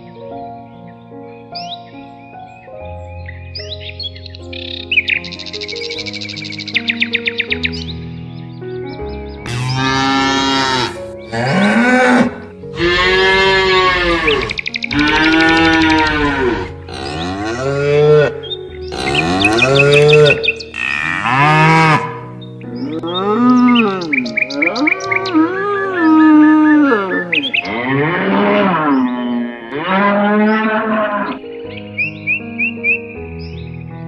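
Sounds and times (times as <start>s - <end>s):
cattle mooing: 9.5s - 31.4s.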